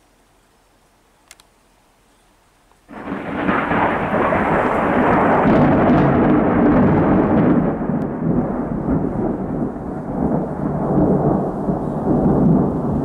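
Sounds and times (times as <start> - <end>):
thunder clap and rumble: 2.9 - 13.0.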